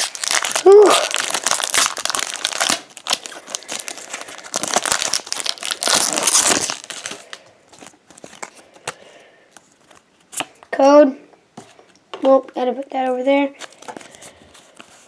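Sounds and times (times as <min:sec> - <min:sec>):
foil wrapper crinkling and tearing: 0:00.0 - 0:08.9.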